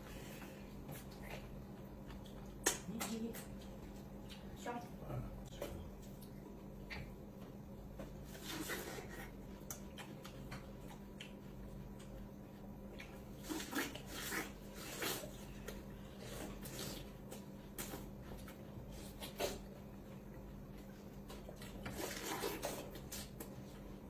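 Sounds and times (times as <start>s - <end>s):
people biting and slurping fruit: 8.0s - 12.2s, 12.9s - 19.9s, 21.1s - 23.8s.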